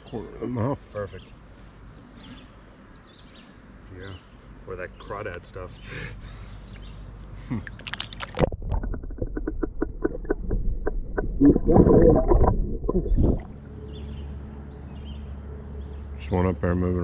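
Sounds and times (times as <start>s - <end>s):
underwater gurgling and sloshing: 7.9s - 14.0s.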